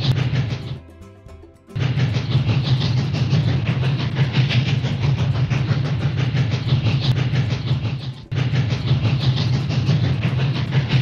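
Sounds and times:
steam train wheels clicking: 0:00.0 - 0:11.0.

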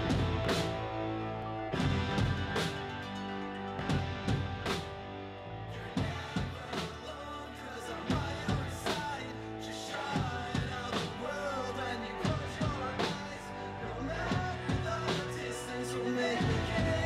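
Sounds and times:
drum kit beat: 0:00.0 - 0:01.0, 0:01.7 - 0:05.0, 0:06.0 - 0:07.1, 0:08.1 - 0:09.2, 0:10.2 - 0:11.3
bass guitar: 0:00.0 - 0:17.0
electric guitars: 0:00.0 - 0:17.0
man singing lead vocal: 0:05.7 - 0:17.0.

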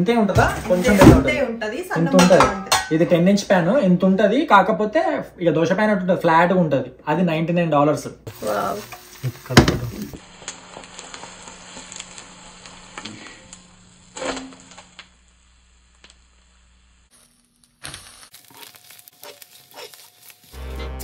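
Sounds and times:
egg sizzling in a pan: 0:08.3 - 0:21.0.

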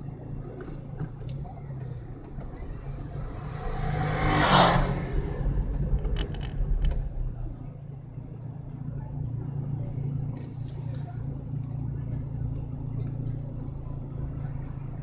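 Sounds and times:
low vehicle running noise: 0:00.0 - 0:15.0
vehicle passing close by: 0:01.8 - 0:07.8.

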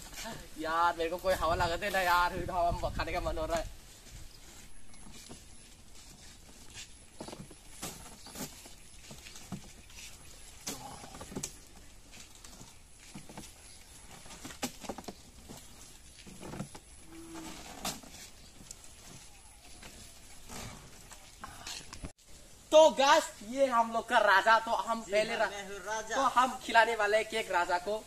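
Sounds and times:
hand fan rustling and clicking: 0:00.0 - 0:22.2.

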